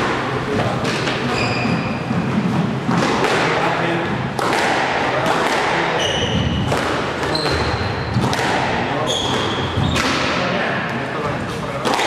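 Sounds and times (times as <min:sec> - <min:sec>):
squash ball knocks: 0:00.0 - 0:10.4, 0:11.8 - 0:12.0
shoes squeaking on wooden floor: 0:01.2 - 0:02.4, 0:06.0 - 0:08.3, 0:09.0 - 0:10.2.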